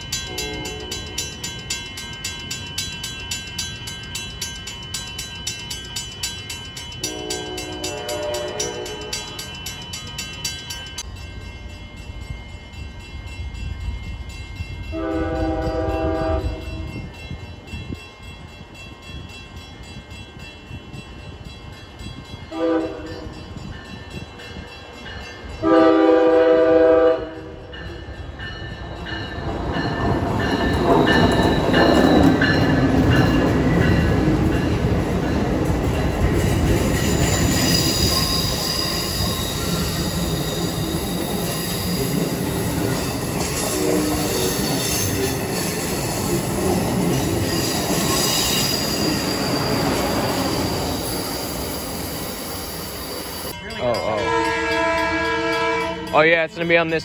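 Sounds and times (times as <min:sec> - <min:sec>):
train rumbling past: 0:00.0 - 0:57.0
train horn blasts: 0:00.3 - 0:01.2, 0:07.0 - 0:09.4, 0:14.8 - 0:17.1, 0:22.5 - 0:23.6, 0:25.6 - 0:27.8, 0:43.6 - 0:44.6, 0:54.0 - 0:56.2
high wheel squeal: 0:37.0 - 0:46.2, 0:47.1 - 0:53.5.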